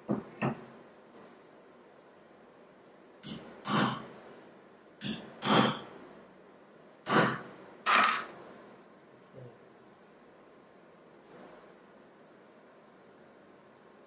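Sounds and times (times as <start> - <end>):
hammer striking metal punch: 3.2 - 4.0, 5.0 - 5.8, 7.1 - 8.3.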